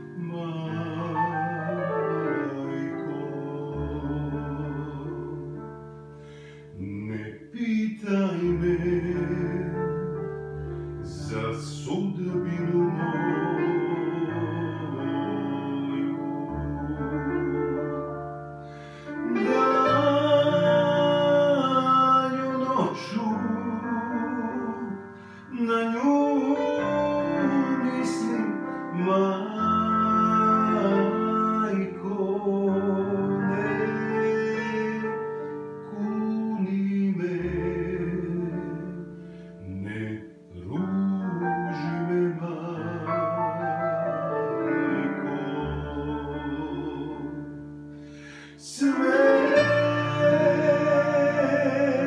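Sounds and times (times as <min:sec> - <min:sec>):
man singing with vibrato: 0:00.0 - 0:10.4, 0:11.0 - 0:52.0
upright piano accompaniment: 0:00.0 - 0:52.0.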